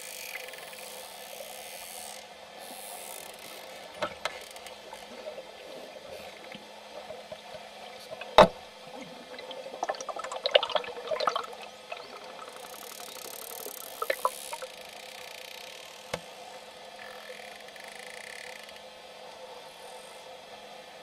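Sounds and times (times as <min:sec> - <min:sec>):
dolphins clicking underwater: 0:00.0 - 0:01.8, 0:02.7 - 0:16.0
water hiss: 0:07.8 - 0:15.2.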